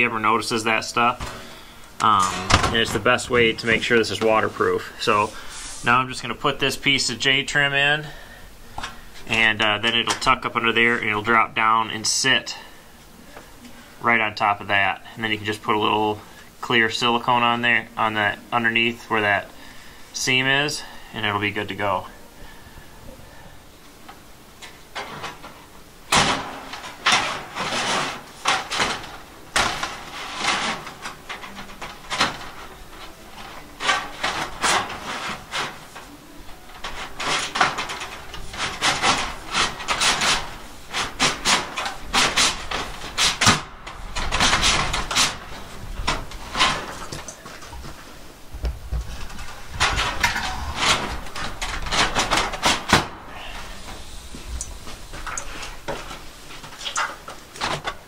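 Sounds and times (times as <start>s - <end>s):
metal scraping and rattling: 0.0s - 12.7s, 24.2s - 58.0s.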